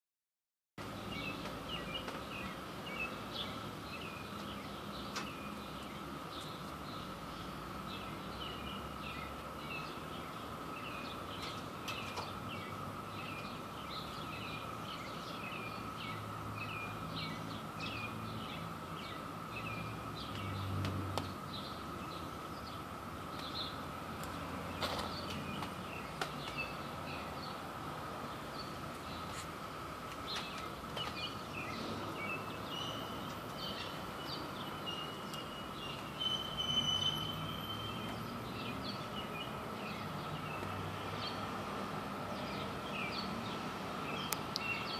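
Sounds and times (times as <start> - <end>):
birds chirping: 0.8 - 44.9.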